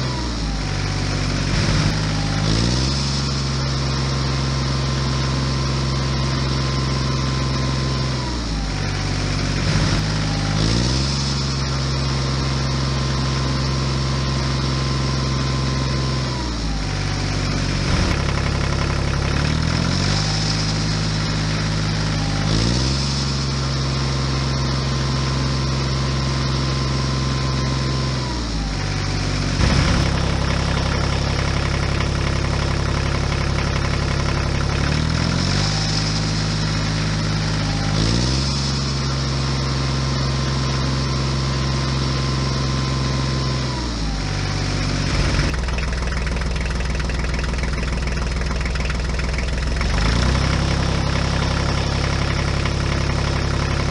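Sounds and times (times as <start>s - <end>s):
tractor engine running: 0.0s - 53.9s.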